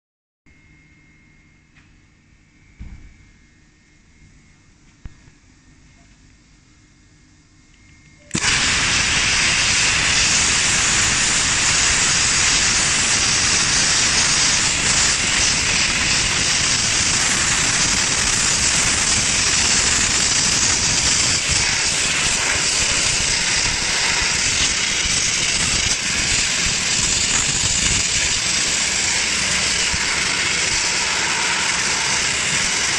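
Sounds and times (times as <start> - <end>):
dry ice blasting hiss: 8.3 - 32.9.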